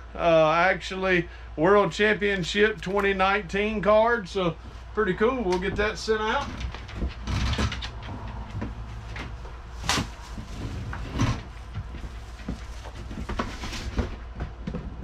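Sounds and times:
packaging rustling: 0:09.5 - 0:14.2.

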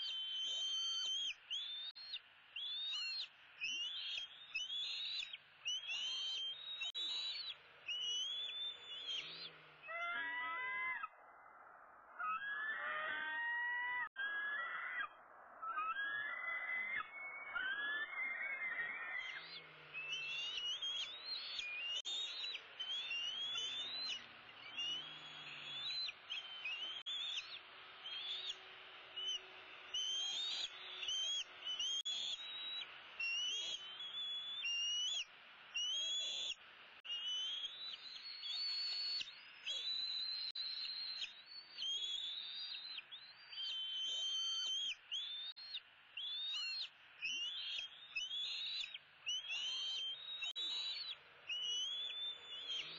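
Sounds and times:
eaglet high whistled calls: 0:00.0 - 0:11.1, 0:12.2 - 0:28.6, 0:29.2 - 0:52.9.

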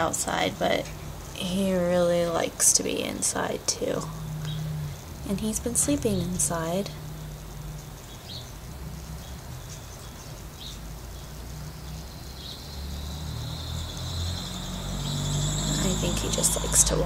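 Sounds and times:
low rumble: 0:00.0 - 0:17.0
insects trilling: 0:03.4 - 0:17.0.

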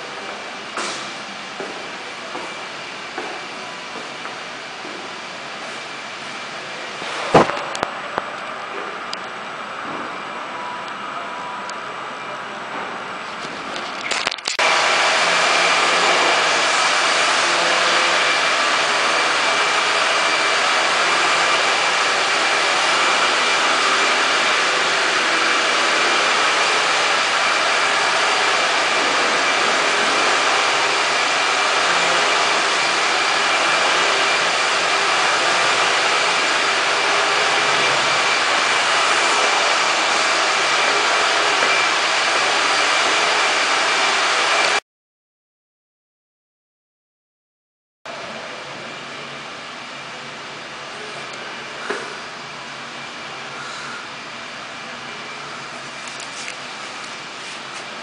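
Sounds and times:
loud rushing noise: 0:14.6 - 0:44.8
high-pitched whine: 0:48.1 - 0:58.0.

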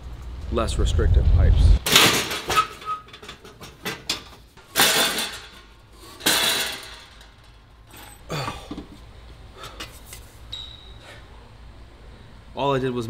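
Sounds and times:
metal exhaust pipes clanking: 0:01.8 - 0:08.8.

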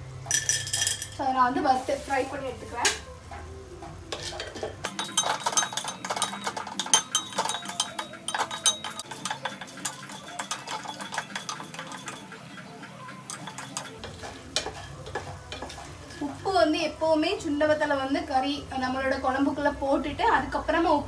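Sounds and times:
spoon scraping steel pan: 0:04.1 - 0:16.6.

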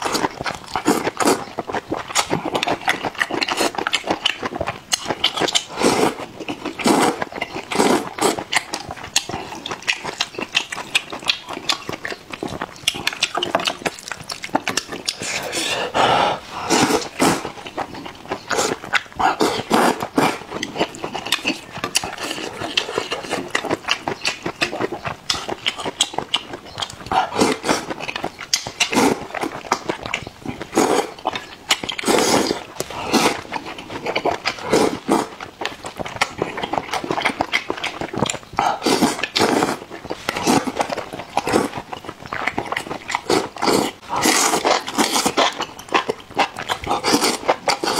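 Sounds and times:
noodles slurping: 0:00.0 - 0:47.9
wet chewing: 0:00.0 - 0:47.9.

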